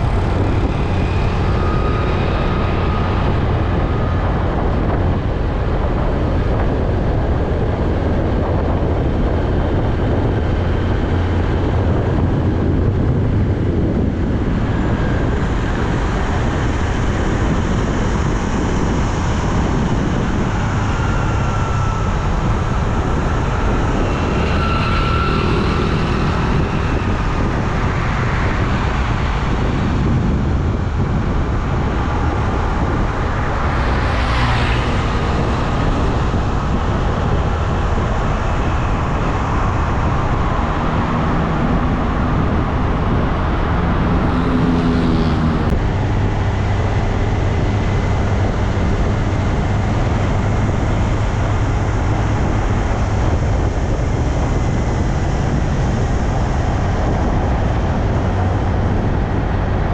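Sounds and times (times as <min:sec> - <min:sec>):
highway traffic rushing: 0:00.0 - 0:59.9
vehicle passing close: 0:20.0 - 0:45.8
engine note rising in pitch: 0:20.8 - 0:28.7.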